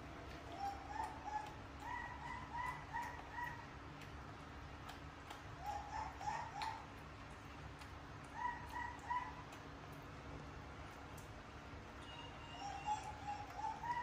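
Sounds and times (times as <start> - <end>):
faint light clicks: 2.6 - 5.5.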